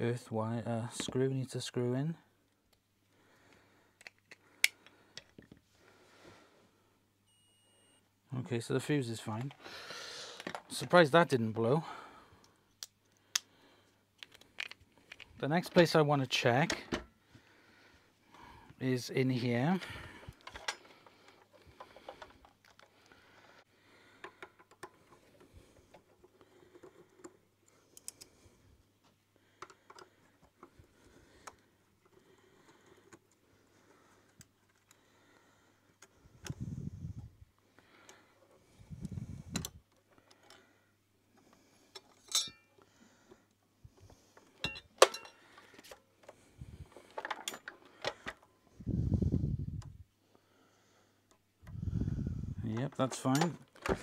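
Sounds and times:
small clicks and taps of parts: 0:03.5 - 0:05.6, 0:12.4 - 0:13.5, 0:14.1 - 0:15.4, 0:20.3 - 0:23.2, 0:24.2 - 0:28.3, 0:29.5 - 0:30.8.

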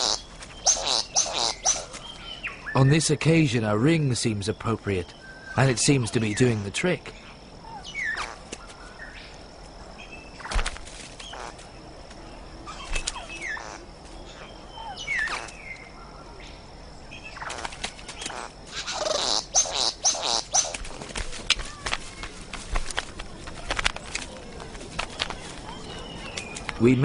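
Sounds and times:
harsh buzzing bird calls: 0:00.0 - 0:03.1, 0:04.5 - 0:08.6, 0:10.2 - 0:11.7, 0:12.6 - 0:16.4, 0:17.0 - 0:20.9
bird clicks: 0:20.3 - 0:26.8.

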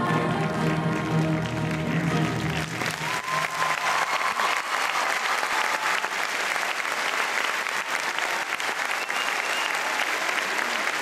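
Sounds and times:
music: 0:00.0 - 0:03.8
audience applauding: 0:00.2 - 0:11.0.

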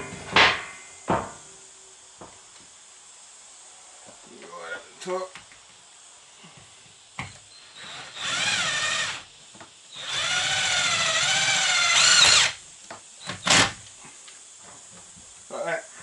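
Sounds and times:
cordless drill whining: 0:07.8 - 0:09.3, 0:09.9 - 0:12.6.

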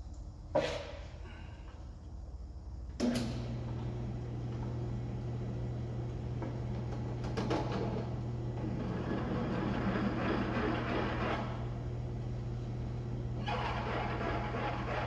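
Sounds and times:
drill press motor humming: 0:03.1 - 0:15.0
drill bit scraping metal: 0:08.7 - 0:11.6, 0:13.4 - 0:15.0.

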